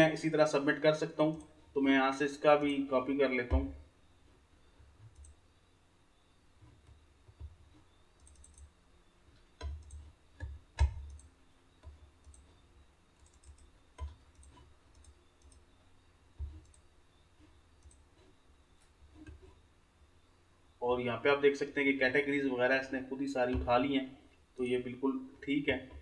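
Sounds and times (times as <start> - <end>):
mouse and keyboard clicks: 6.6 - 8.8, 13.2 - 15.7.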